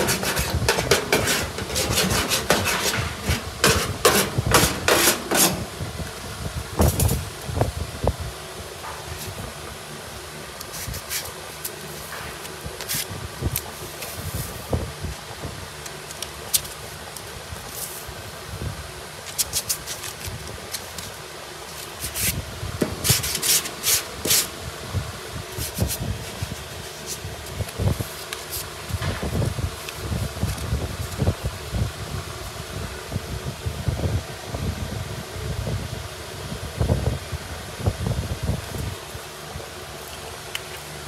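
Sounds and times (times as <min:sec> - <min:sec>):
sanding block scraping: 0:00.0 - 0:05.8, 0:21.7 - 0:24.5, 0:25.6 - 0:27.3
fan hum: 0:00.0 - 0:41.0.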